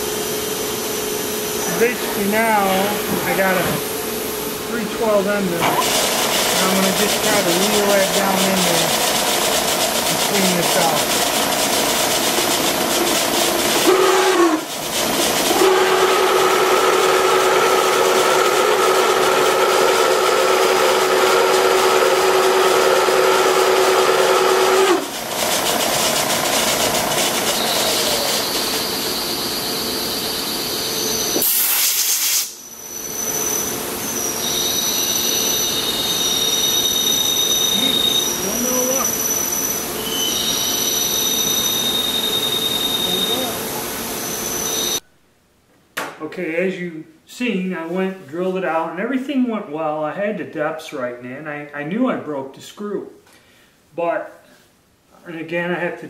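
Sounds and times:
milling machine cutting steel squeal: 5.6s - 14.0s, 26.8s - 31.6s, 32.6s - 45.0s.

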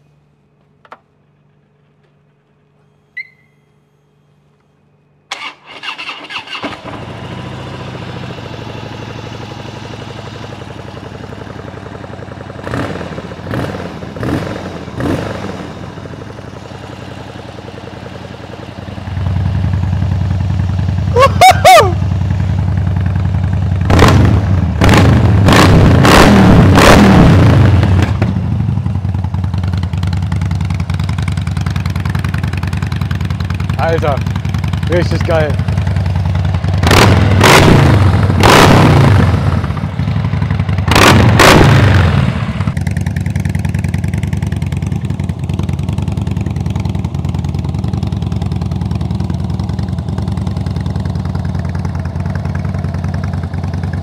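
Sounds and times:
short squeal: 2.9s - 3.9s
motorcycle engine revving: 5.3s - 54.0s.

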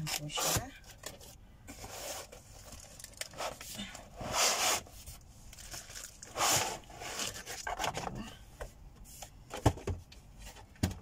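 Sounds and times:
foam scraping against cardboard: 4.1s - 5.1s, 6.2s - 7.5s.

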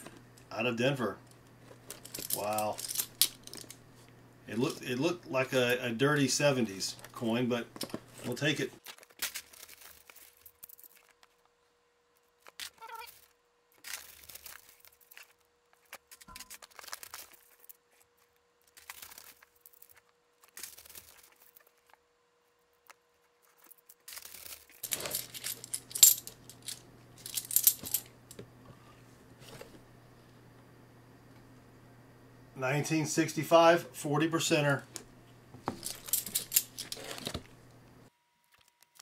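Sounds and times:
steady low hum: 0.0s - 8.8s, 24.8s - 38.4s
coins clinking: 1.9s - 3.8s, 24.1s - 28.1s, 35.8s - 37.4s.

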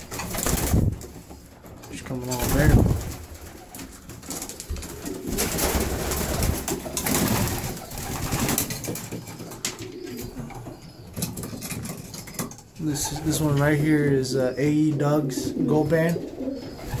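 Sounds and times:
clicks and rustles: 0.0s - 12.8s
pigeons cooing: 0.0s - 17.0s.

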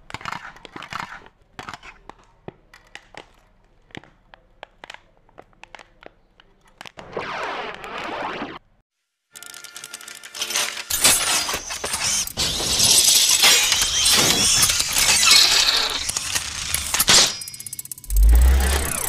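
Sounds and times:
metallic clinking and ratcheting: 9.4s - 19.0s.

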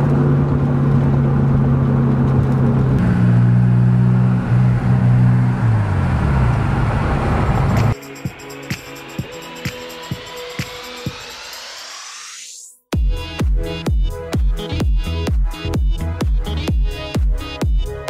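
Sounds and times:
car running and road noise: 0.0s - 8.0s
wheel bearing drone: 0.0s - 8.0s
music: 7.9s - 18.0s.

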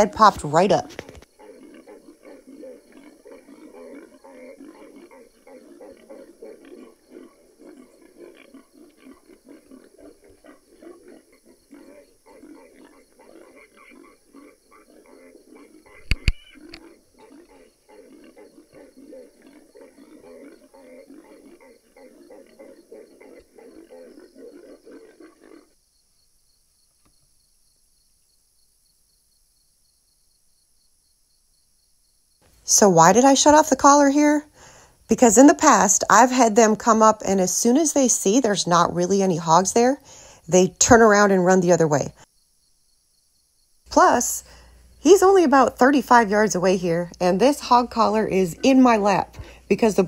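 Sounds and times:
low pig grunts from speaker: 1.4s - 25.7s.

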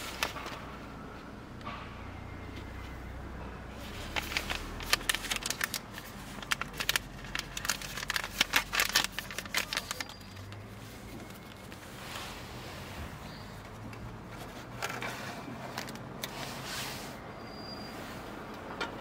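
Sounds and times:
crinkling and crackling: 0.0s - 0.9s, 3.7s - 17.0s.

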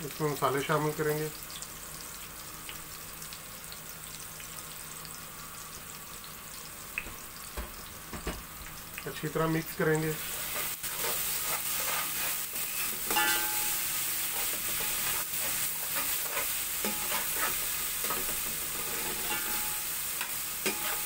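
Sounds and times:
sizzle of frying in oil: 0.0s - 21.0s
spatula scraping metal pot: 10.4s - 13.5s, 14.3s - 19.8s, 20.6s - 21.0s.

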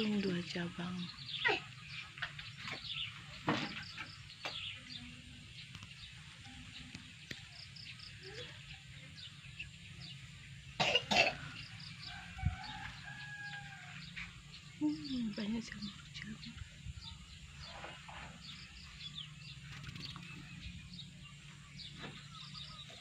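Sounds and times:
person coughing: 10.8s - 11.4s.

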